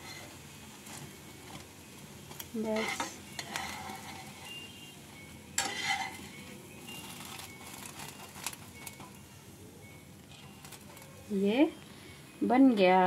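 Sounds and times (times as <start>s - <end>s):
spatula scraping a pan: 0.0s - 1.7s, 2.3s - 9.2s
food frying in oil: 0.0s - 11.8s.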